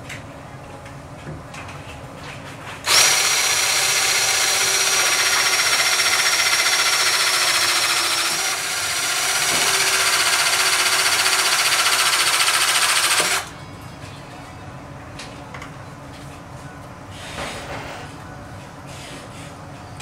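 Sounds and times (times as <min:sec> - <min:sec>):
rivet gun pump whining: 0:02.9 - 0:13.5.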